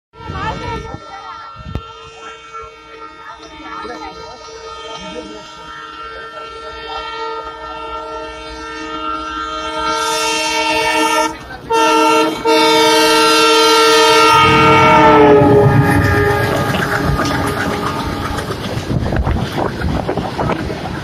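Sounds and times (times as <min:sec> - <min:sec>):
train horn blasts: 0:00.1 - 0:19.4
freight wagons rumbling by: 0:13.8 - 0:21.0.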